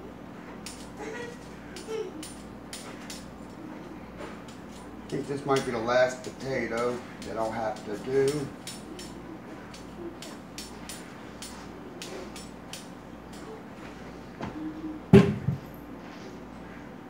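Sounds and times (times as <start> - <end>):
heavy thump on counter: 15.1 - 15.6.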